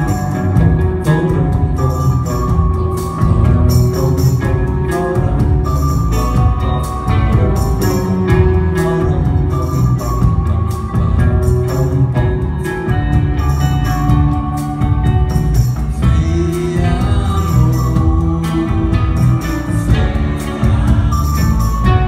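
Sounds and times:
bass guitar: 0.0s - 22.0s
drums: 0.0s - 22.0s
electric guitars: 0.0s - 22.0s.

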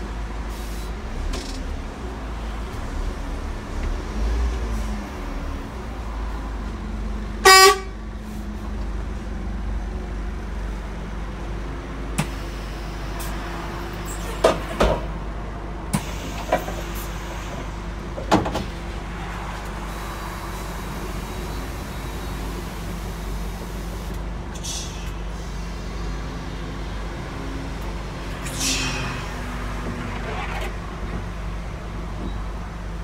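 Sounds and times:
bus diesel engine idling: 0.0s - 33.0s
short horn toot: 7.4s - 7.9s.

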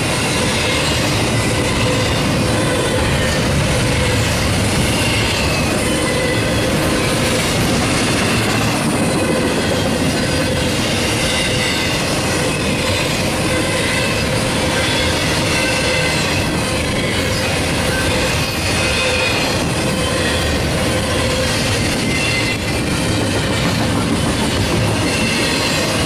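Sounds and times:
train wheels rolling on rails: 0.0s - 26.0s
high squealing of wheels: 0.1s - 26.0s.

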